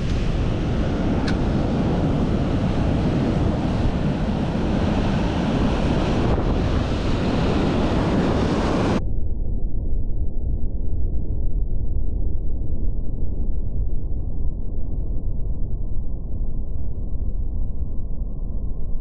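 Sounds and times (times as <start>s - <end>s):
surf breaking over rocks: 0.0s - 9.0s
wind buffeting microphone: 0.0s - 9.0s
low rumble: 0.0s - 19.0s.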